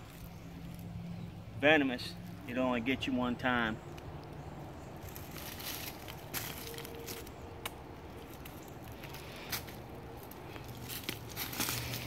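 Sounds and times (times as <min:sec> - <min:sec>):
shoes shifting on gravel: 0:05.0 - 0:07.4, 0:08.3 - 0:12.0.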